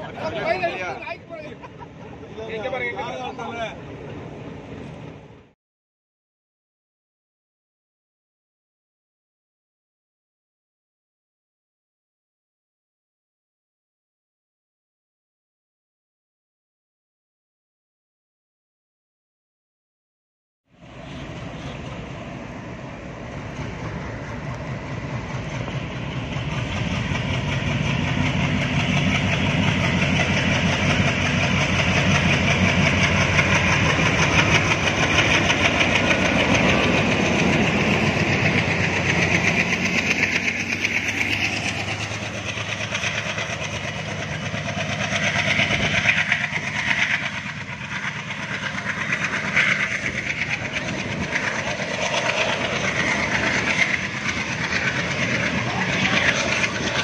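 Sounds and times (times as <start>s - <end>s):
diesel locomotive engine: 0.0s - 5.6s, 20.7s - 57.0s
train wheels clickety-clack: 23.3s - 57.0s.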